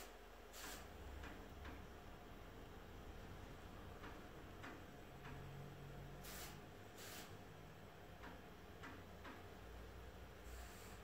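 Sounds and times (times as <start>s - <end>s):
short hissing bursts: 0.0s - 0.9s, 6.2s - 7.4s, 10.4s - 11.0s.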